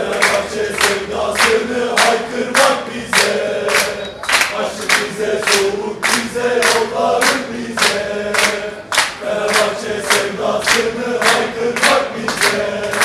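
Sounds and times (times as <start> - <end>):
crowd clapping beats: 0.0 - 13.0
football crowd chanting: 0.0 - 13.0.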